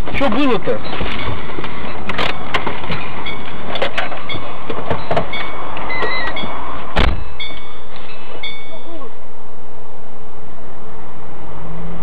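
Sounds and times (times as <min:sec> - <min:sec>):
car interior rumble: 0:00.0 - 0:09.9
heavy thump: 0:07.0 - 0:07.4.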